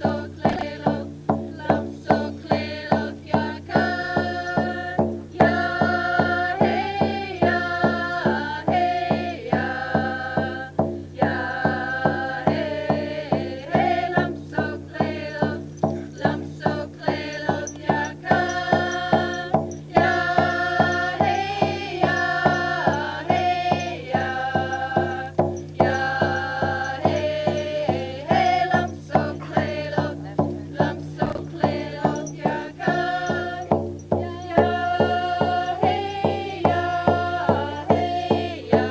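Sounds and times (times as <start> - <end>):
group singing in unison: 0.0 - 38.9
hand drum beat: 0.0 - 38.9.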